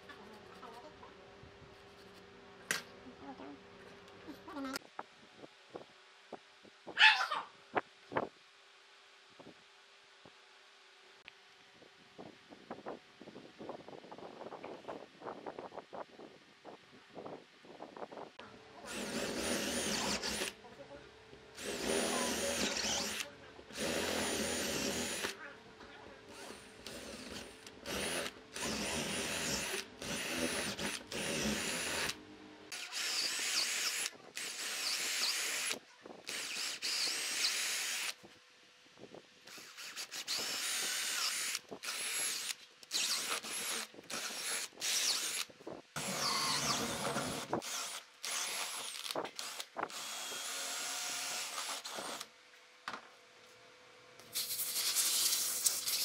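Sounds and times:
electric drill boring into wood: 0:18.9 - 0:20.5, 0:21.6 - 0:25.4, 0:26.3 - 0:38.2, 0:39.4 - 0:52.3.

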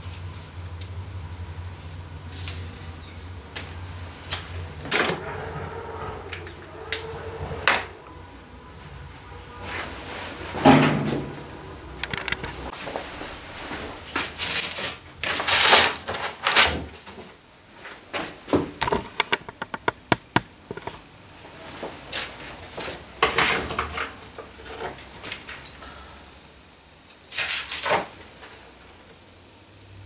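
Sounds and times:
rustling and scraping: 0:12.0 - 0:25.7.

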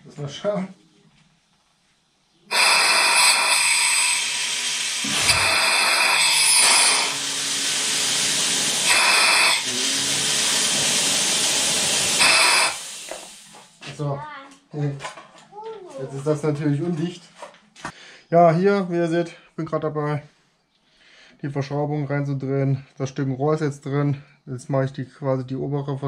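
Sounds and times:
compressed air hissing: 0:02.5 - 0:13.8.

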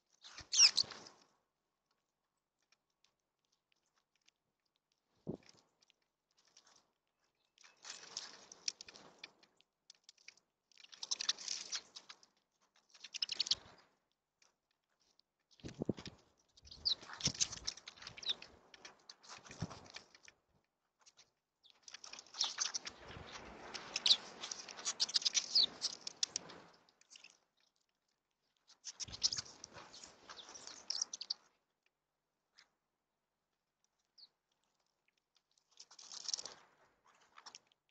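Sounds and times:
bird chirps: 0:00.3 - 0:01.0, 0:13.1 - 0:13.6, 0:16.7 - 0:18.5, 0:23.9 - 0:26.3, 0:29.0 - 0:29.6, 0:30.2 - 0:31.4
bird wings fluttering: 0:15.6 - 0:20.1, 0:21.9 - 0:27.3, 0:28.9 - 0:31.2.

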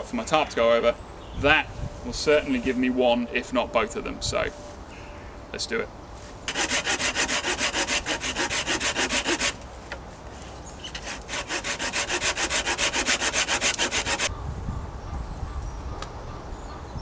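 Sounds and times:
hand saw cutting wood: 0:06.5 - 0:09.6, 0:10.8 - 0:14.3.

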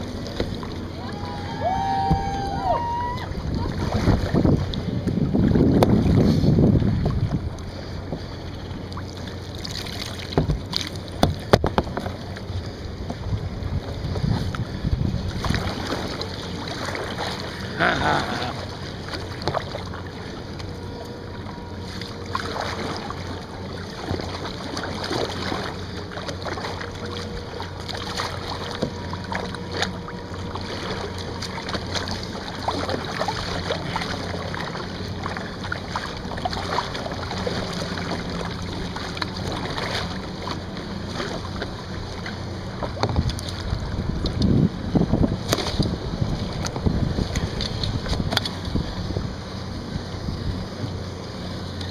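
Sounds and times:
paddle strokes splashing: 0:00.0 - 0:51.9
wind buffeting microphone: 0:00.8 - 0:08.3, 0:13.0 - 0:16.0, 0:43.0 - 0:51.0.

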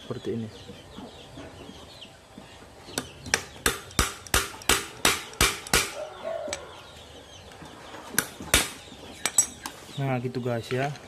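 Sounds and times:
chisel striking metal: 0:03.3 - 0:06.0.

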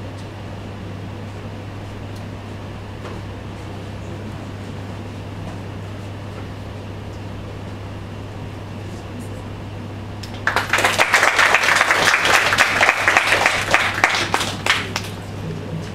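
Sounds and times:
low steady hum: 0:00.0 - 0:15.9
audience clapping: 0:10.2 - 0:15.9.

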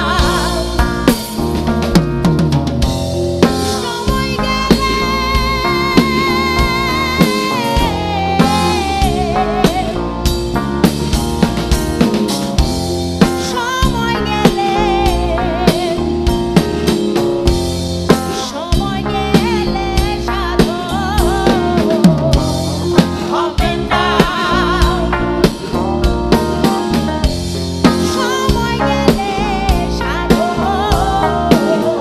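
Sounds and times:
woman singing: 0:00.0 - 0:01.4, 0:03.5 - 0:10.2, 0:13.3 - 0:16.4, 0:18.3 - 0:32.0
bass guitar: 0:00.0 - 0:32.0
electric guitar: 0:00.0 - 0:32.0
rock drum kit: 0:00.0 - 0:32.0.

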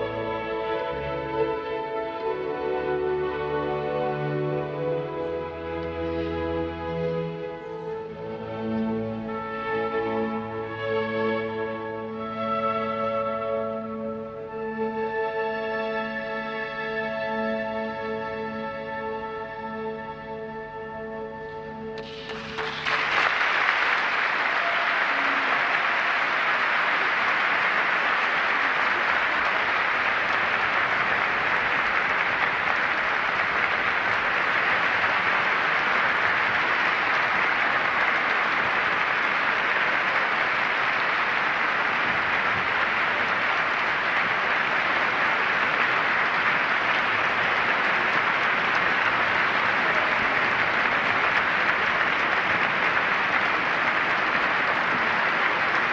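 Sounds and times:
audience applauding: 0:22.0 - 0:55.9.

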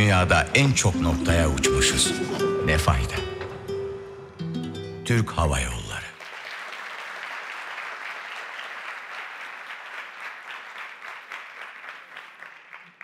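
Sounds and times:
audience applauding: 0:06.1 - 0:13.0.

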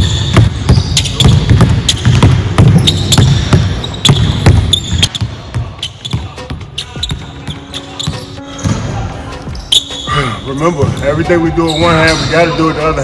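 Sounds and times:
basketball bouncing on hardwood: 0:00.1 - 0:06.2.

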